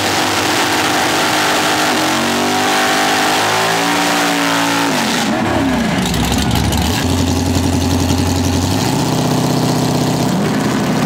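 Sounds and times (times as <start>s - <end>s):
drag car engine high revs: 0.0s - 11.0s.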